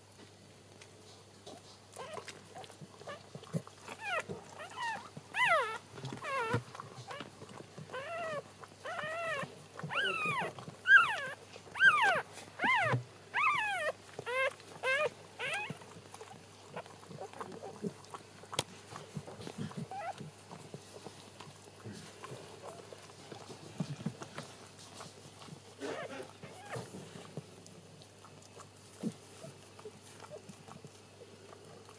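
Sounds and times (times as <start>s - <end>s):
puppy squealing: 4.0s - 6.6s, 8.0s - 15.8s, 19.9s - 20.2s, 25.8s - 26.9s.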